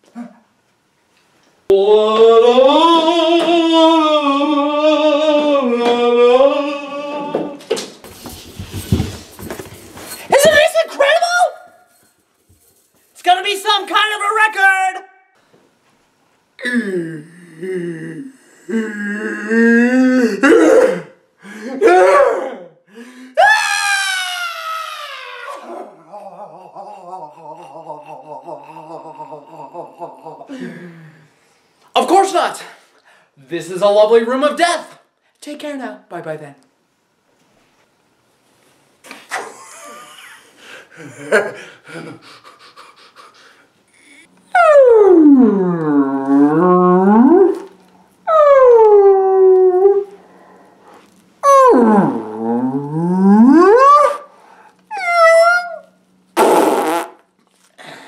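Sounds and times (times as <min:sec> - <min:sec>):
man moaning: 0:01.7 - 0:07.6, 0:16.6 - 0:23.5, 0:24.9 - 0:31.3
man yelling: 0:10.3 - 0:11.8, 0:13.2 - 0:15.3, 0:21.7 - 0:22.8
man screaming: 0:13.6 - 0:15.3, 0:21.7 - 0:22.8, 0:23.4 - 0:30.0
man crying out: 0:16.6 - 0:22.8, 0:23.4 - 0:30.7
man groaning: 0:16.6 - 0:22.8, 0:25.2 - 0:31.2
man panting and grunting: 0:21.4 - 0:21.8, 0:26.0 - 0:31.2.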